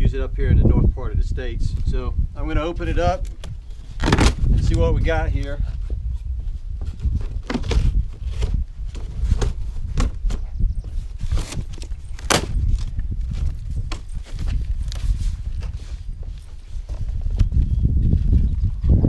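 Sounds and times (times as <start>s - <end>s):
cardboard box cracks and knocks: 11.4s - 12.9s.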